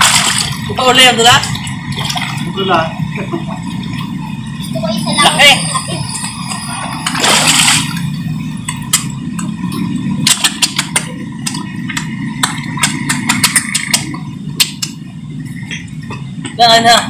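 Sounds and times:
fish splashing at water surface: 0:00.0 - 0:02.6, 0:06.3 - 0:09.2, 0:10.2 - 0:15.0
low engine-like hum: 0:00.0 - 0:17.0
fish sucking smacks and clicks: 0:10.2 - 0:15.0.

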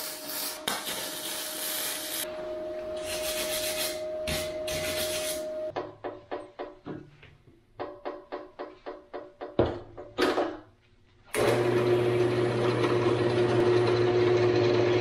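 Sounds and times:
welding arc crackling and hissing: 0:00.0 - 0:02.3
scrubbing strokes on metal: 0:03.0 - 0:05.6.

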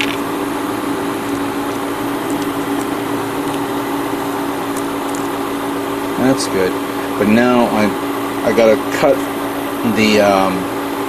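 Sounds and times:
fan humming: 0:00.0 - 0:11.0
masking tape peeling: 0:00.9 - 0:06.2.

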